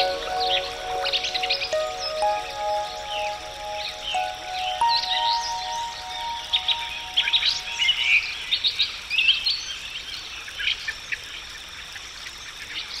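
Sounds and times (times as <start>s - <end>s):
piano note: 0.0s - 8.2s.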